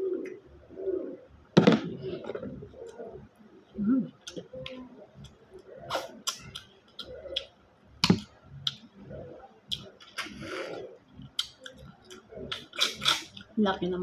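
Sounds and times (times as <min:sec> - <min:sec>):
shell clicks and lip smacks: 0:11.3 - 0:11.8.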